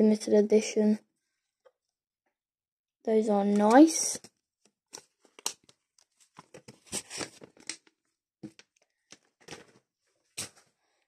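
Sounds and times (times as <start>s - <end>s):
cards rustling and tapping: 3.5s - 4.3s, 4.9s - 9.8s.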